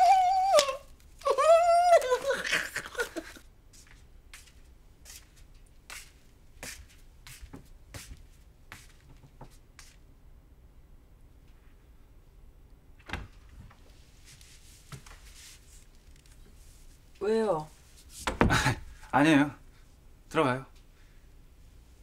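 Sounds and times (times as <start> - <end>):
woman crying out gleefully: 0.0 - 3.4
slipper footsteps on wooden floor: 5.9 - 10.0.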